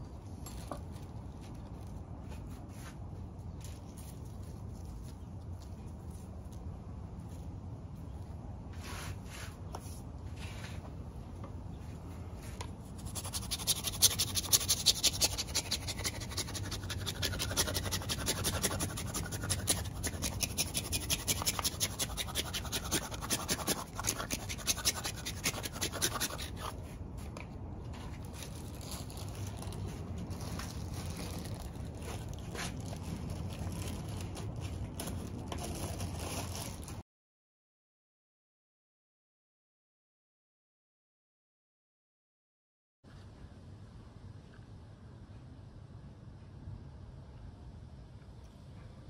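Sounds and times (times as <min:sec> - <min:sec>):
cheese grating scrapes: 0:13.0 - 0:26.8.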